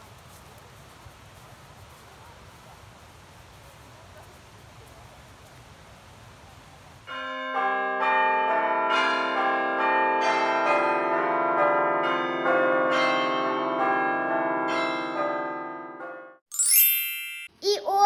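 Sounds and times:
peal of bells ringing: 0:07.1 - 0:17.6.

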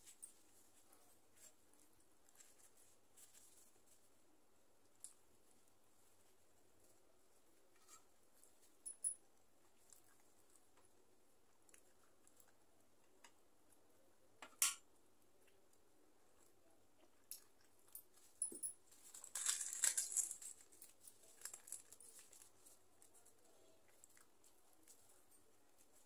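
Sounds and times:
bread tearing crackle: 0:18.9 - 0:25.2.

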